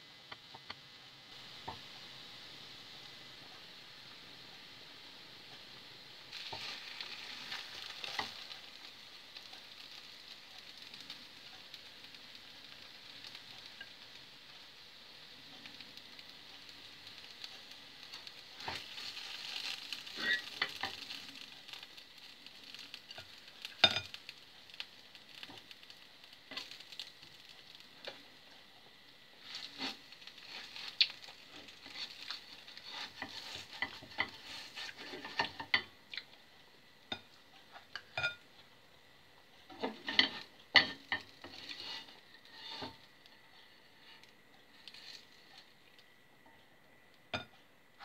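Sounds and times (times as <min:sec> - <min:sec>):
pancakes sizzling in a pan: 0:00.0 - 0:46.0
spatula scraping and clicking: 0:29.4 - 0:36.3, 0:39.7 - 0:43.0.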